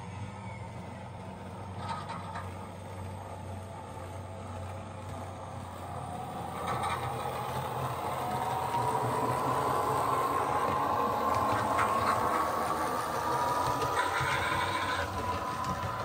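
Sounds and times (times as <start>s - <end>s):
low hum: 0.0s - 16.0s
electric motor whine: 4.4s - 16.0s.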